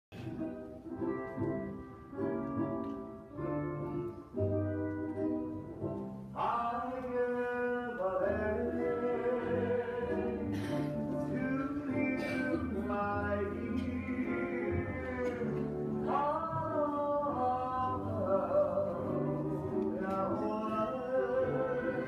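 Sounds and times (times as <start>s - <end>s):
person singing: 6.4s - 22.0s.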